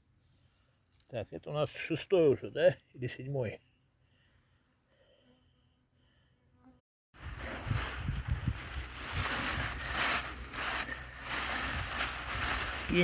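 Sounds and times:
plastic bag rustling: 7.2 - 13.0.

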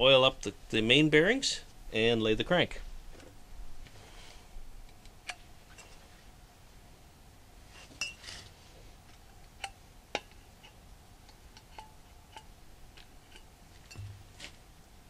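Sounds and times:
metallic clicks of oil can: 9.6 - 14.2.

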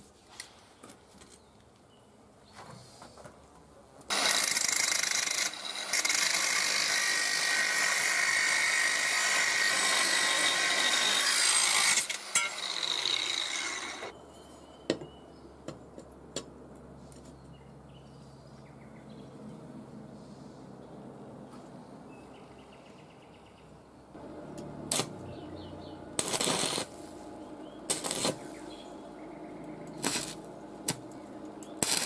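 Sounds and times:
angle grinder grinding steel: 4.1 - 14.1, 24.5 - 28.9, 29.9 - 32.0.

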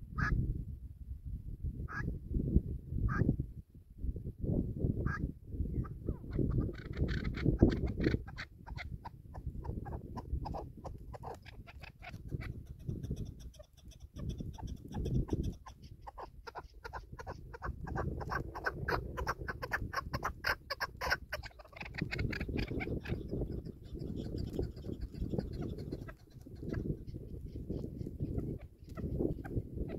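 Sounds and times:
wind rumble on microphone: 0.0 - 29.9.

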